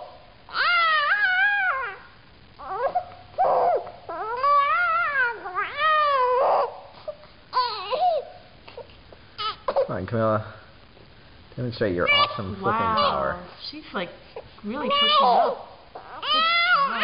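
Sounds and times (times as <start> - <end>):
baby crying: 0.5 - 9.9, 12.0 - 13.5, 14.7 - 17.0.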